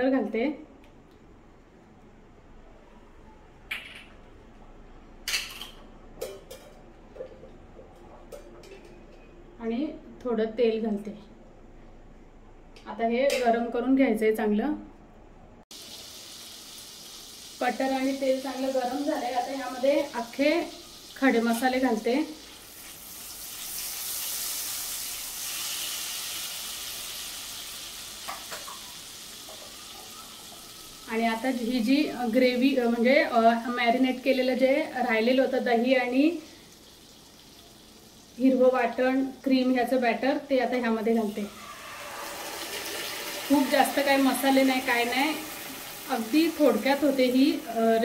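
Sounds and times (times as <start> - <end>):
spices sizzling in a frying pan: 15.7 - 48.0.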